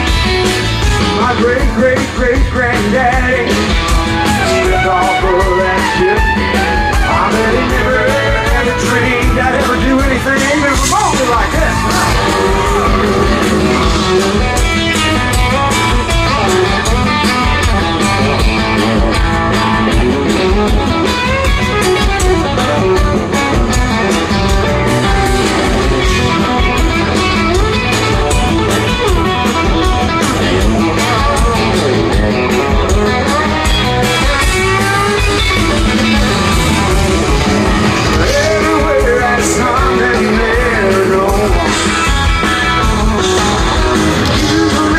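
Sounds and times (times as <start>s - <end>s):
electric guitar: 0.0s - 44.9s
live country-rock band: 0.0s - 44.9s.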